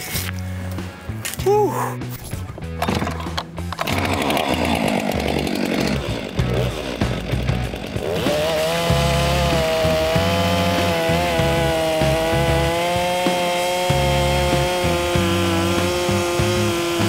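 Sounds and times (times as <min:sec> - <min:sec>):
chainsaw cutting through log: 0:03.8 - 0:17.0.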